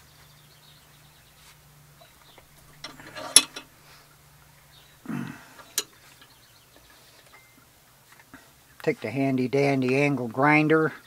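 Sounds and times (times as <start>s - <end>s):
metal rattles and clinks: 2.6s - 3.7s
sharp metallic clack: 2.8s - 3.7s.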